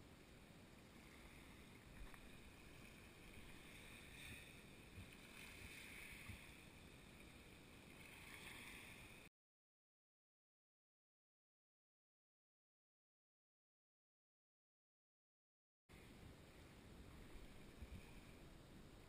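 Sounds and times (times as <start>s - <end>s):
faint hiss: 0.0s - 9.3s, 15.9s - 19.0s.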